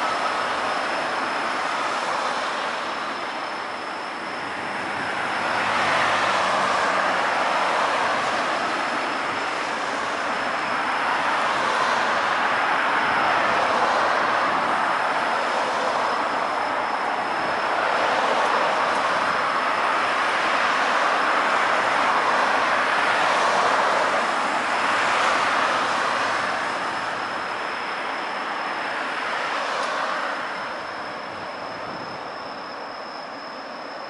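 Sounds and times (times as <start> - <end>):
faint steady high tone: 0.0 - 13.3, 14.1 - 20.2, 25.4 - 34.0
cars passing on wet road: 1.6 - 2.8, 4.8 - 27.4, 28.8 - 30.5.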